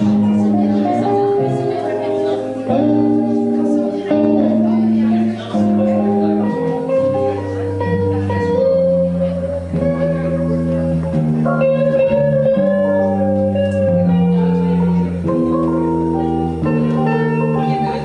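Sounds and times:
electric guitar blues lead: 0.0s - 18.0s
keyboard bass line: 0.0s - 18.0s.

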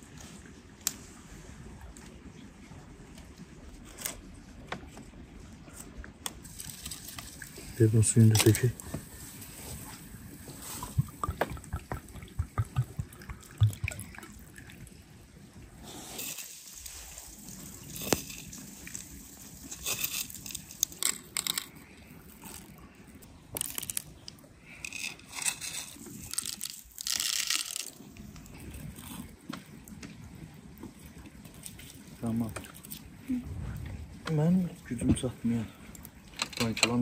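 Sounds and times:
peppercorns pattering into glass jars: 16.2s - 22.7s, 23.6s - 28.5s.

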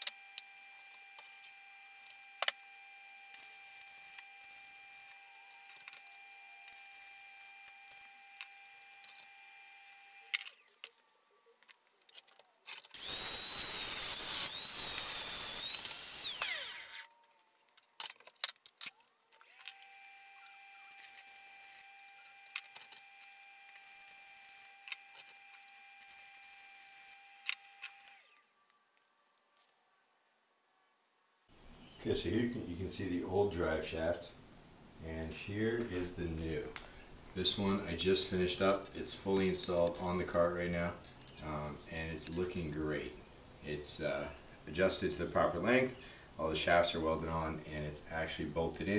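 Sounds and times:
welding arc sizzle and whine: 0.0s - 10.8s, 12.9s - 17.1s, 19.4s - 28.5s
angle grinder whining: 0.0s - 11.1s, 12.6s - 17.5s, 19.3s - 28.6s.

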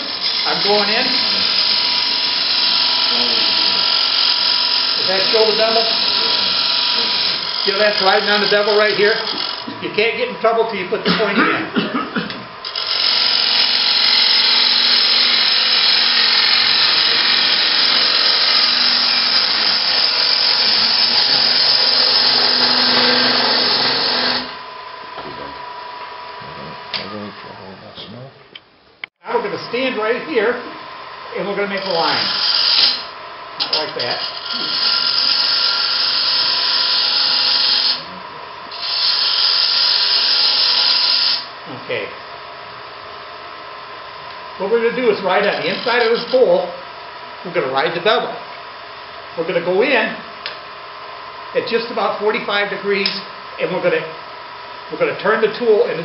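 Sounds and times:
gouge cutting wood on lathe: 0.0s - 9.7s, 12.6s - 24.6s, 31.7s - 33.1s, 33.7s - 38.1s, 38.7s - 41.5s
lathe whine: 0.0s - 10.9s, 12.3s - 27.8s, 29.4s - 56.0s.

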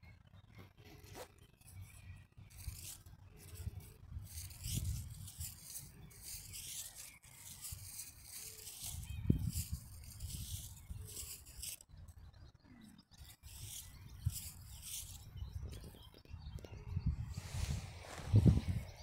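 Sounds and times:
high scratchy rasping: 1.0s - 12.0s, 13.1s - 16.0s
wind rumble on microphone: 8.9s - 11.2s, 13.8s - 19.0s.

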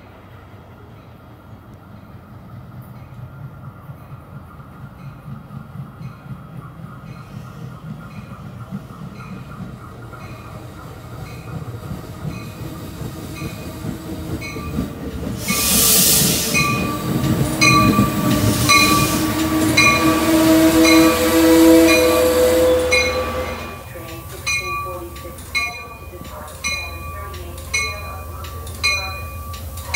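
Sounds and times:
train wheels rolling: 1.7s - 29.9s
hiss burst: 15.4s - 17.5s
bell ringing: 22.9s - 29.9s.

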